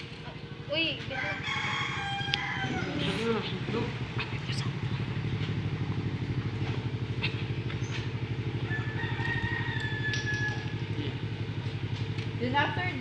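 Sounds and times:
engine idling: 0.0 - 13.0.

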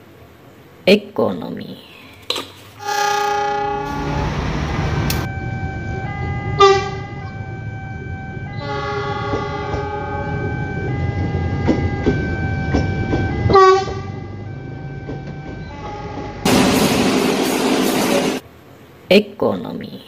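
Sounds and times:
train horn: 2.8 - 5.2, 6.1 - 7.4, 8.5 - 17.4
rumble of approaching train: 2.8 - 19.1.

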